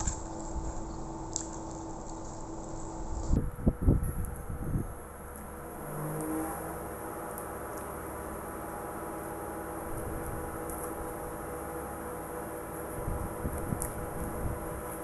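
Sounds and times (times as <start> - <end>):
fried chicken crackling: 0.0 - 4.6
steady background hum: 0.0 - 15.0.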